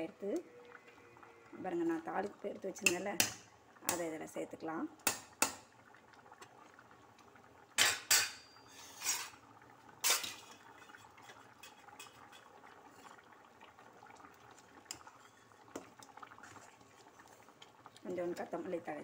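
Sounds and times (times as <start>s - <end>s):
ladle scraping steel pan: 8.1s - 9.4s, 14.9s - 15.6s.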